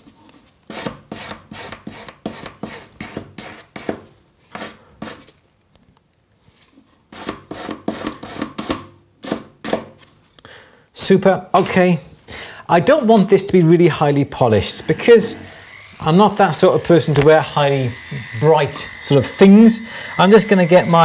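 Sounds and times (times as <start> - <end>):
sanding stick scraping metal: 14.8 - 21.0.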